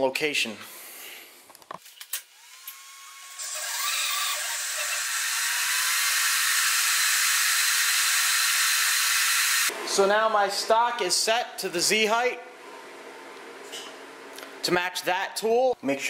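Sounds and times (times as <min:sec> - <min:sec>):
hissing machine whine: 0:02.4 - 0:10.0.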